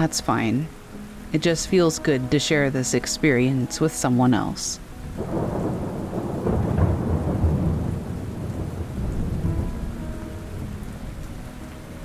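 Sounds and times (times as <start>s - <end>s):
steady rain: 0.0s - 12.0s
rolling thunder: 5.2s - 11.4s.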